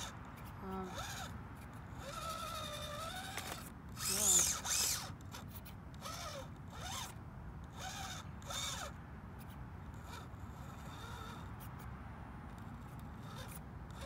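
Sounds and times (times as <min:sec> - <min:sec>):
electric motor whining: 0:00.0 - 0:11.6, 0:12.6 - 0:14.0.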